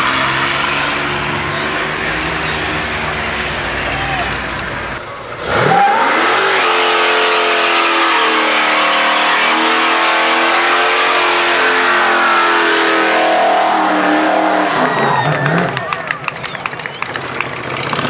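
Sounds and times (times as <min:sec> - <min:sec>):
car engine at high revs: 0:00.0 - 0:18.0
tyres spinning on tarmac: 0:14.4 - 0:18.0.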